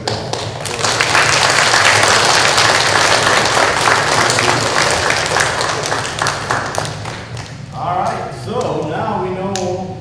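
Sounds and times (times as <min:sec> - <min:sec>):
children applauding: 0:00.0 - 0:07.6.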